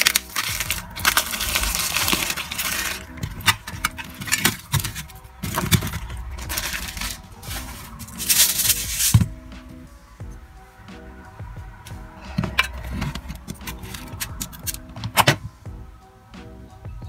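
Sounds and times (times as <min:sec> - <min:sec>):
plastic packaging crinkling and tearing: 0:00.0 - 0:09.3, 0:12.5 - 0:15.4
quiet background music: 0:00.0 - 0:17.0.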